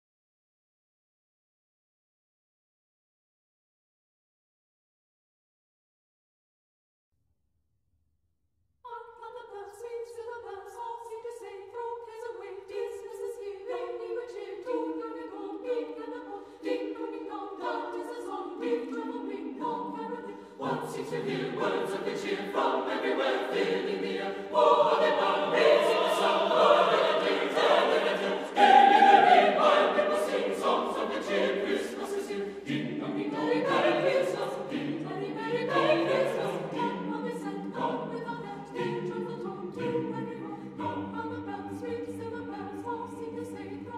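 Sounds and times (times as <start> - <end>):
choir singing: 8.9 - 43.9.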